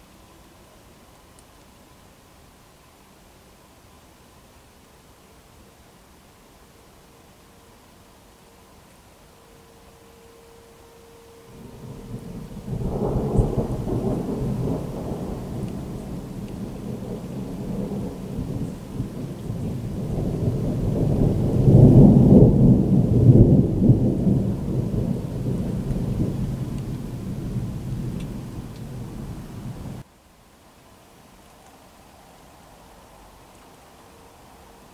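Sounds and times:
rolling thunder: 11.5 - 30.0.

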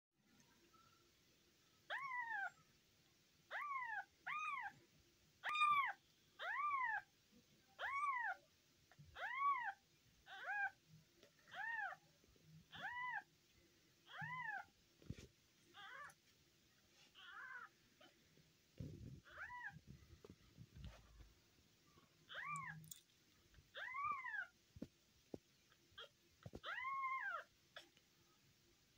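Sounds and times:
soft low rustling: 14.2 - 28.0.

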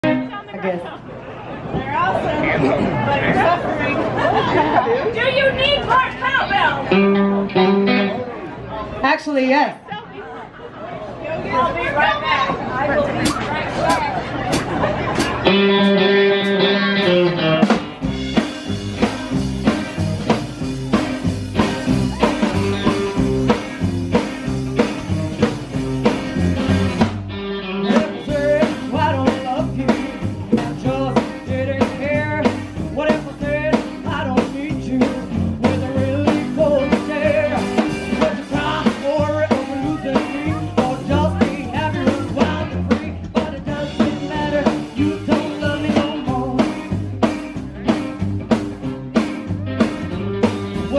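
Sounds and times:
rockabilly band playing: 0.0 - 50.9
woman singing: 27.9 - 46.6.

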